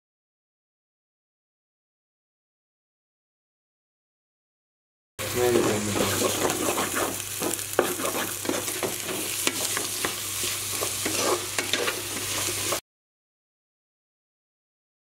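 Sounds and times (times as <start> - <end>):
vegetables sizzling in pot: 5.2 - 12.8
spoon scraping metal pot: 5.5 - 12.8.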